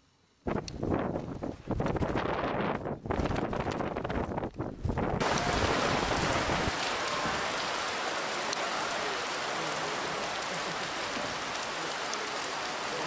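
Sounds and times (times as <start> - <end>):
heavy rain falling: 4.9 - 13.0.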